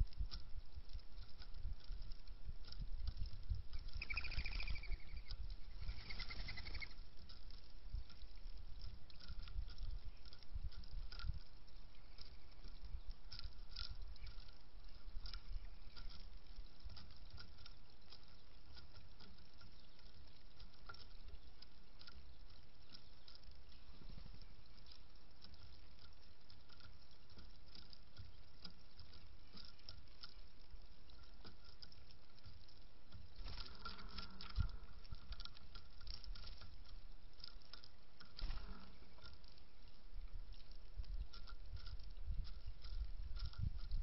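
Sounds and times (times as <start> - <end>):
doves pecking seeds clicking: 0.0 - 44.0
wing rustling: 0.0 - 44.0.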